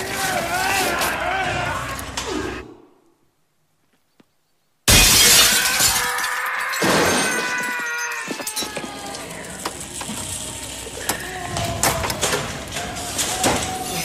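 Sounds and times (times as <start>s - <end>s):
glass shards clinking: 4.9s - 8.8s
glass breaking crash: 4.9s - 10.5s.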